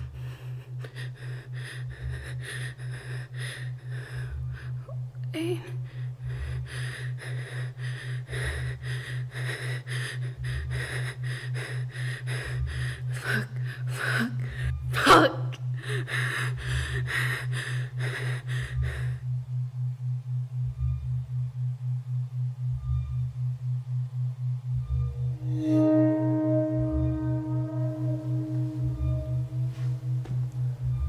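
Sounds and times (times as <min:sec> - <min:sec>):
person breathing hard: 0:00.0 - 0:14.9, 0:15.6 - 0:19.4
deep throb: 0:00.0 - 0:31.0
pulsing electronic drone: 0:00.0 - 0:31.0.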